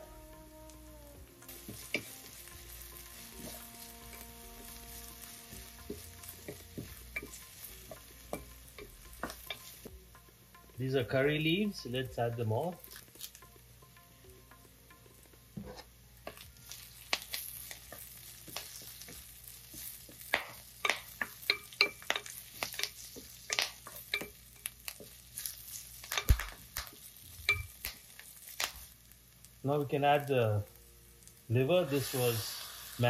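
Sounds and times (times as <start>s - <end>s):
vegetables sizzling in oil: 0.0s - 33.0s
wooden spatula scraping a pan: 1.5s - 9.9s.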